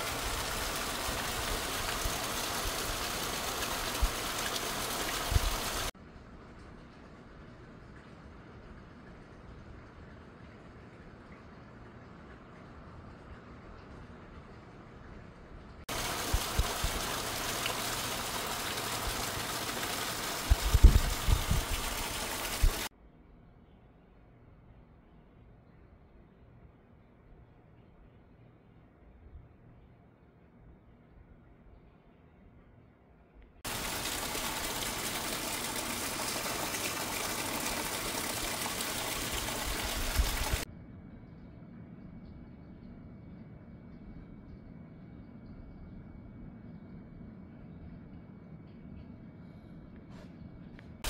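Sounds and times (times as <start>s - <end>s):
heavy rain pouring: 0.0s - 5.9s, 15.9s - 22.9s, 33.7s - 40.6s
water gushing into plastic bucket: 0.0s - 5.9s, 15.9s - 22.9s, 33.7s - 40.6s.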